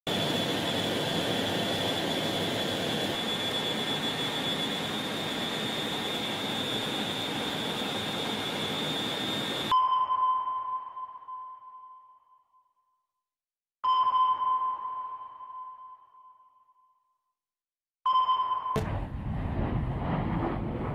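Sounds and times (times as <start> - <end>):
aircraft engines and airflow roar: 0.1 - 9.7, 18.8 - 20.9
sonar-style ping: 9.5 - 13.0, 13.8 - 17.2, 18.1 - 19.5
high whine: 18.8 - 20.9.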